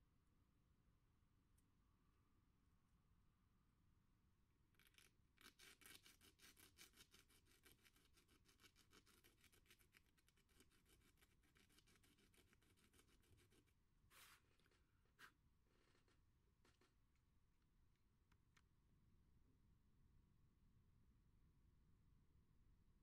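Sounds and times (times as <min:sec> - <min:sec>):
nail scratching sandpaper: 0:04.8 - 0:16.9.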